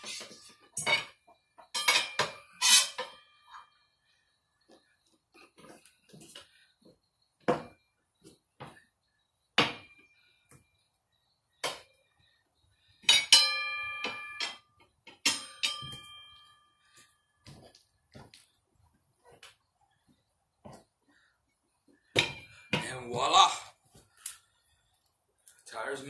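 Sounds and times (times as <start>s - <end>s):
tire spoons clinking on wheel rim: 13.0s - 16.9s
loud ringing metal clangs: 13.1s - 16.7s.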